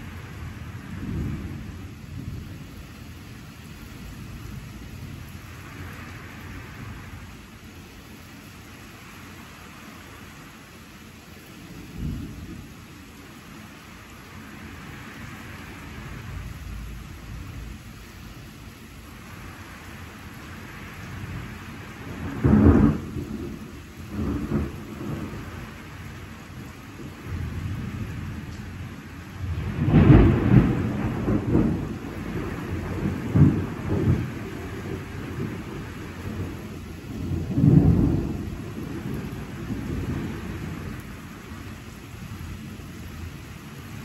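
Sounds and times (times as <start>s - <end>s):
rolling thunder: 0.0s - 2.6s, 21.0s - 41.6s
steady rain: 0.0s - 44.0s.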